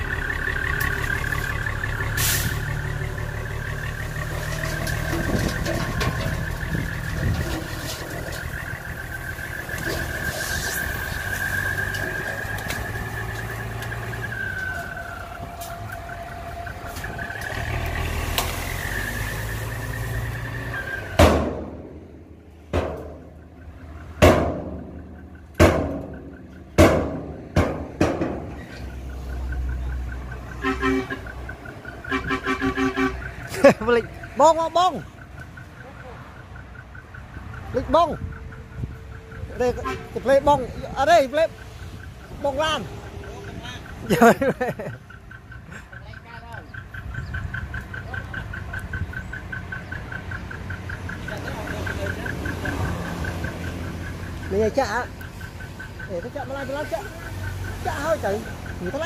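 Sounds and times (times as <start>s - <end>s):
diesel truck engine under load: 0.0s - 59.0s
sharp bangs: 21.0s - 28.7s.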